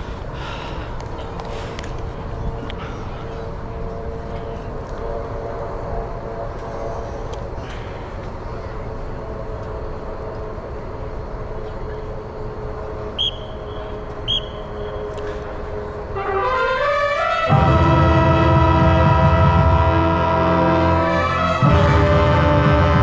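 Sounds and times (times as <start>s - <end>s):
marching band playing: 16.2s - 23.0s
crowd hum: 17.2s - 23.0s.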